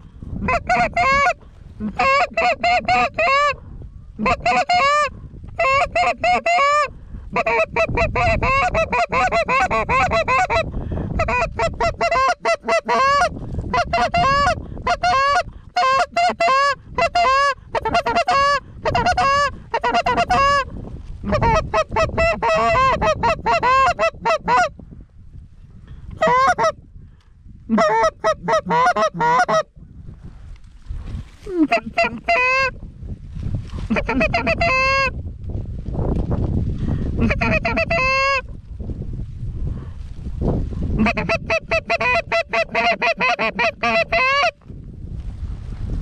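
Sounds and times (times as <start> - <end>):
low wind rumble: 0.0 - 46.0
goose honking: 0.4 - 3.6, 4.2 - 24.7, 26.2 - 26.8, 27.7 - 29.7, 31.5 - 32.7, 33.9 - 35.1, 37.2 - 38.4, 41.0 - 44.6.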